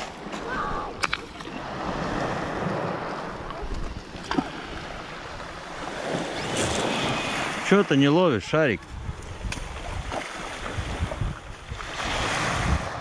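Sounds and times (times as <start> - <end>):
wind on microphone: 8.8 - 13.0
waves washing over pebble beach: 9.3 - 13.0.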